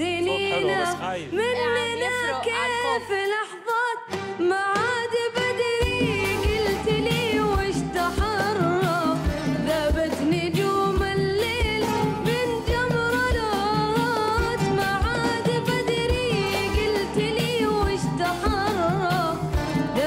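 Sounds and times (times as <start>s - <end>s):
boy singing melismatic phrases: 0.0s - 3.6s
live band with drum beat: 2.1s - 20.0s.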